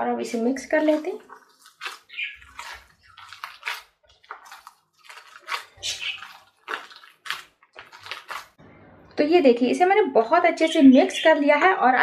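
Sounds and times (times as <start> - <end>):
wet squishing of kneaded mash: 0.1 - 8.6.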